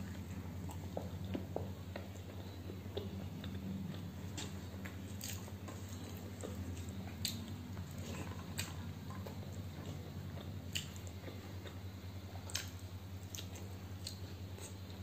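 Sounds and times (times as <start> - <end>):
mouth chewing: 0.0 - 15.0
sharp wet clicks: 12.5 - 14.2.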